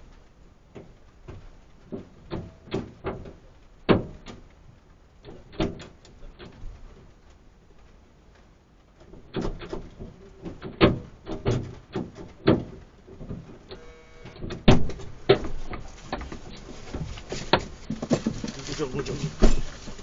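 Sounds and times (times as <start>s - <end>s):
brief whine: 13.7s - 14.5s.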